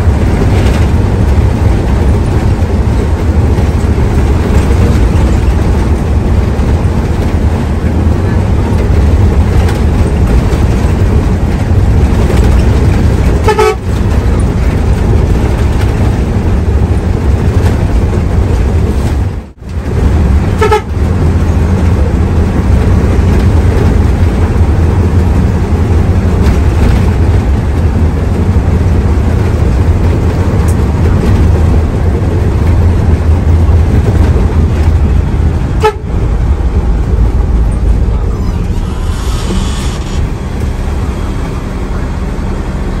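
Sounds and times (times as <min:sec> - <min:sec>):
bus diesel engine drone: 0:00.0 - 0:43.0
road noise: 0:00.0 - 0:43.0
horn toot: 0:13.4 - 0:13.8, 0:20.6 - 0:20.9, 0:38.6 - 0:40.3.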